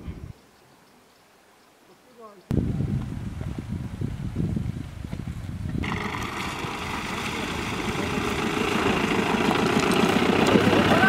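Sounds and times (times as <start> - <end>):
suv engine running: 5.8 - 11.0
vehicle driving through water: 5.8 - 11.0.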